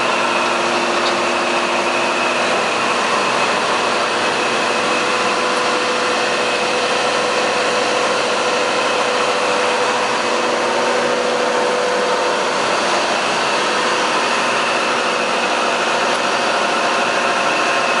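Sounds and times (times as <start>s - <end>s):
machinery mechanical drone: 0.0s - 18.0s.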